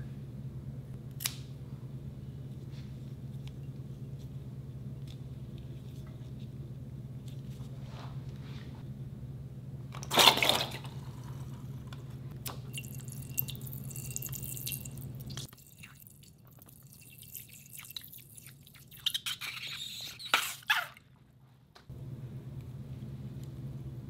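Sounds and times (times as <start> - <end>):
water spurting into glass bowl: 12.7 - 20.2.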